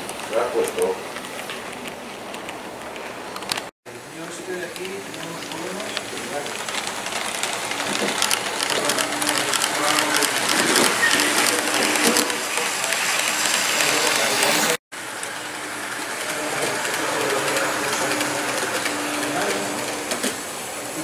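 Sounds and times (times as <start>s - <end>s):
model train wheels clattering: 3.4s - 21.0s.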